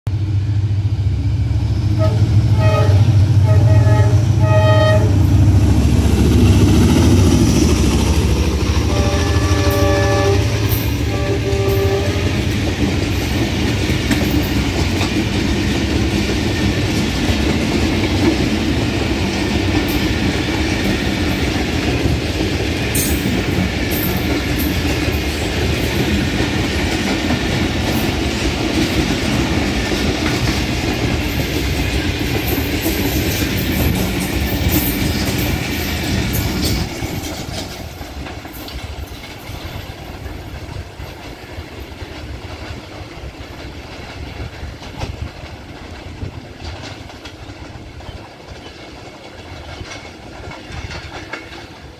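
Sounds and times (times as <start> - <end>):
heavy locomotive rumble: 0.1 - 51.9
locomotive horn: 1.9 - 5.3, 8.8 - 12.6
coaches clickety-clack on track: 3.7 - 51.9.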